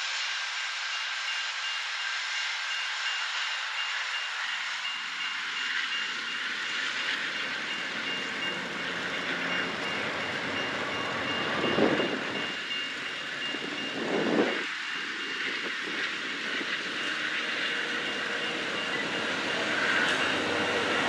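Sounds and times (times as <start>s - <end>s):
train wheels rumbling on rails: 0.0s - 21.0s
crossing warning bell beeping: 2.4s - 21.0s.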